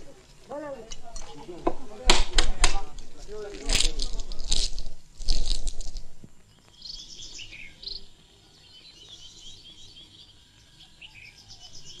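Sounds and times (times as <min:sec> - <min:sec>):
birds chirping and singing: 0:06.4 - 0:12.0.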